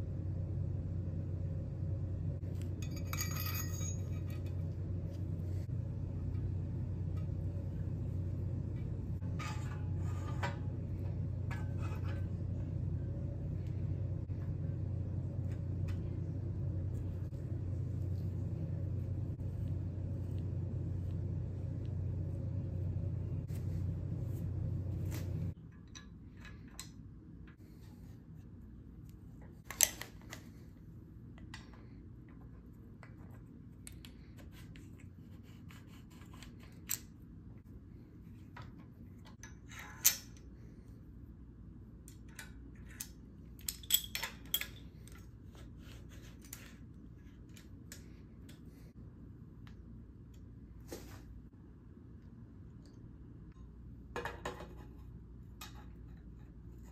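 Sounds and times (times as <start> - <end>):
low background rumble: 0.0 - 29.6
metal parts clicking and tapping: 42.0 - 45.3.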